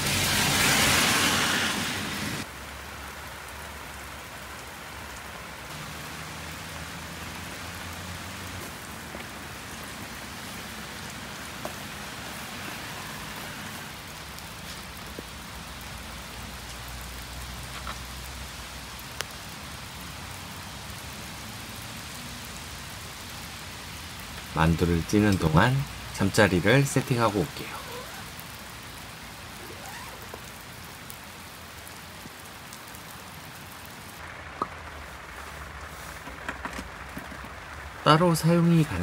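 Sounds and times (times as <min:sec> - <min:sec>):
steady rain falling: 0:00.0 - 0:39.0
single raindrops ticking: 0:13.9 - 0:20.7, 0:22.9 - 0:38.0.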